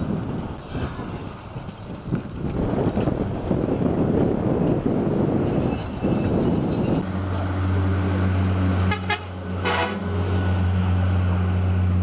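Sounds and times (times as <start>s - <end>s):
diesel engine humming: 6.8s - 12.0s
short horn toots: 8.8s - 10.1s.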